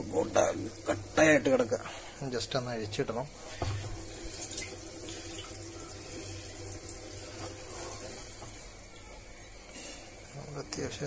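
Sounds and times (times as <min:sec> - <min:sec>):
water sloshing and splashing: 0:02.8 - 0:09.0.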